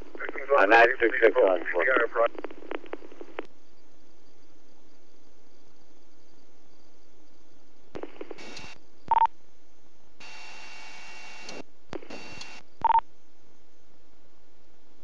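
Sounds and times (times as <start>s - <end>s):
radio static hiss bursts: 0.0s - 3.5s, 8.0s - 9.2s, 10.2s - 13.0s
steady low hum: 0.0s - 15.0s.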